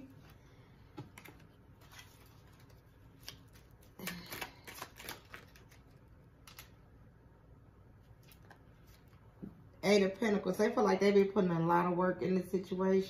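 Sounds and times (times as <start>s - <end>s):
cards being shuffled: 1.0s - 6.8s.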